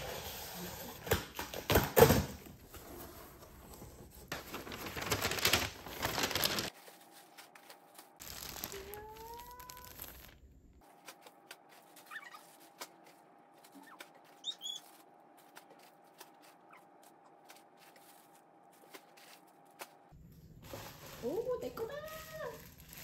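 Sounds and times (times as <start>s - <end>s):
plastic bags rustling: 4.3s - 23.0s.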